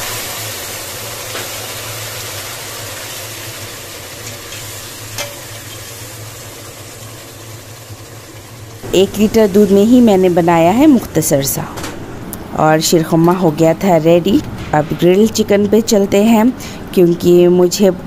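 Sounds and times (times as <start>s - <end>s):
milk sizzling and bubbling: 0.0s - 11.1s.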